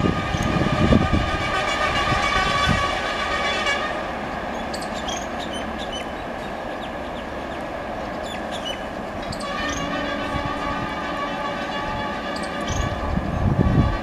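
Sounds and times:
locomotive horn: 0:00.0 - 0:04.6, 0:09.2 - 0:14.0
train rumble: 0:00.0 - 0:14.0
bird chirps: 0:04.6 - 0:07.3, 0:08.2 - 0:09.8.

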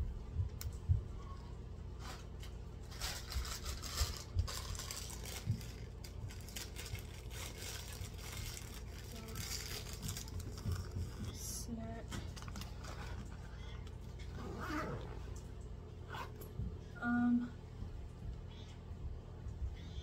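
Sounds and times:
steady low hum: 0:00.0 - 0:20.0
bags and packaging rustling: 0:02.0 - 0:15.2.

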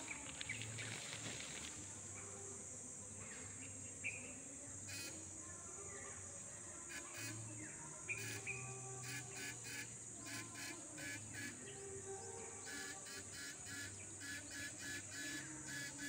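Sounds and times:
high-pitched insect drone: 0:04.7 - 0:16.0
bird chirps: 0:06.9 - 0:16.0.

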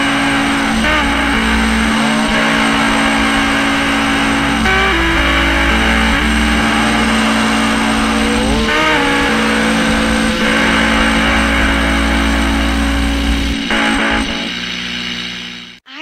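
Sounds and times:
distorted fuzzy guitar drone: 0:00.0 - 0:15.8.

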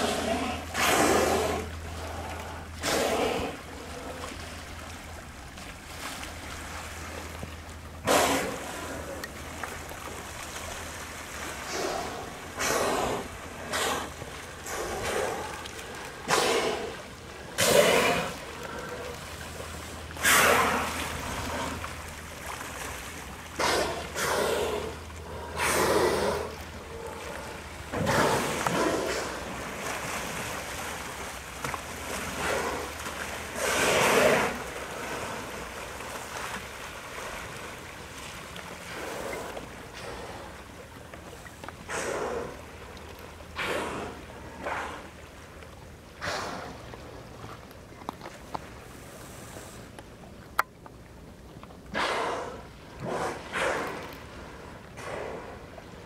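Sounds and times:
whales blowing breathy exhalations: 0:00.0 - 0:04.6, 0:11.5 - 0:22.0, 0:23.5 - 0:31.3, 0:32.0 - 0:35.8, 0:38.9 - 0:42.9, 0:43.6 - 0:45.3, 0:46.2 - 0:47.0, 0:51.9 - 0:56.0.

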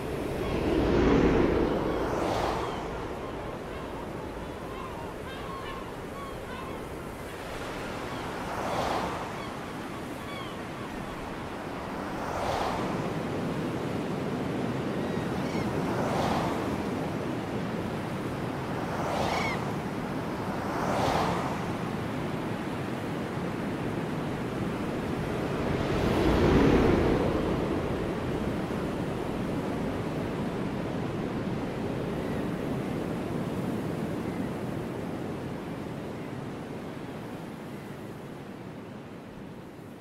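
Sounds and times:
sea waves breaking on beach: 0:00.0 - 0:35.8.

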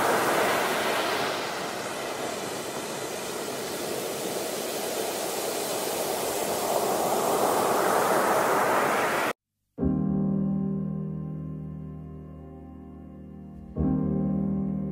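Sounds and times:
ocean waves breaking on beach: 0:00.0 - 0:09.4.

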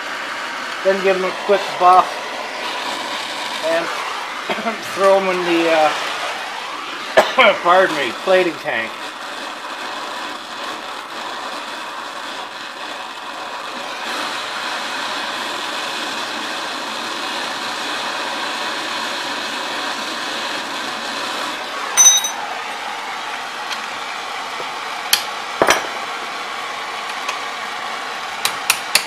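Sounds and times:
torch flame hissing: 0:00.0 - 0:29.0
metallic clink with ring: 0:22.0 - 0:22.4.

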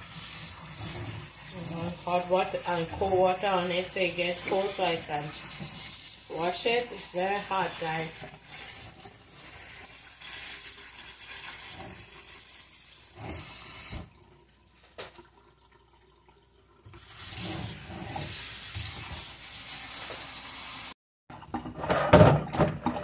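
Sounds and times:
faucet water running onto leaves: 0:00.0 - 0:14.1.

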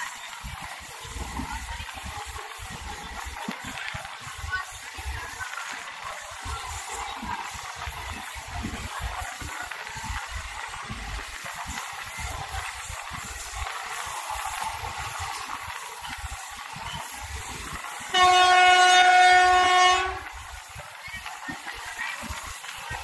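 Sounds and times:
train rumbling: 0:00.0 - 0:23.0
train horn blast: 0:18.1 - 0:20.4.

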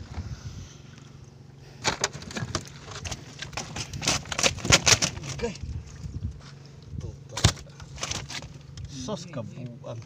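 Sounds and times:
steady low hum: 0:00.0 - 0:10.0
plastic fish trap clattering: 0:01.8 - 0:05.5.

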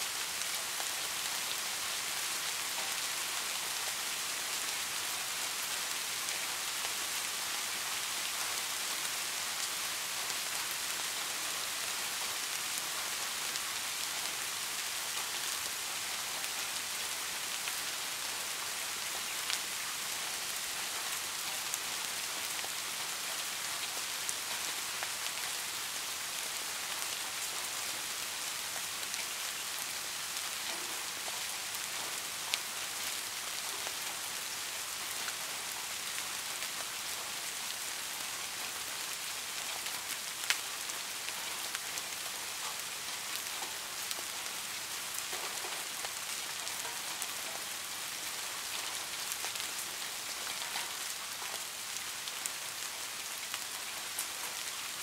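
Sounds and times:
steady rain hiss: 0:00.0 - 0:55.0.

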